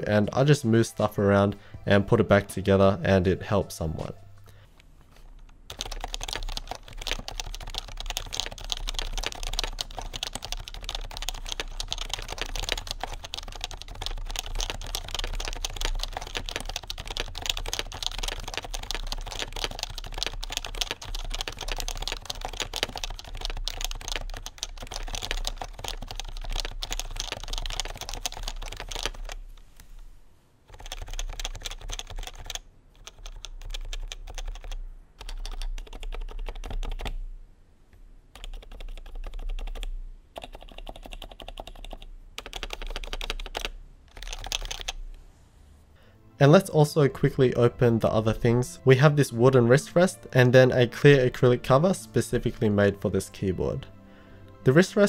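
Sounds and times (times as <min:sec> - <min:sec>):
keyboard typing: 0:05.3 - 0:29.4, 0:30.7 - 0:37.2, 0:38.3 - 0:45.0.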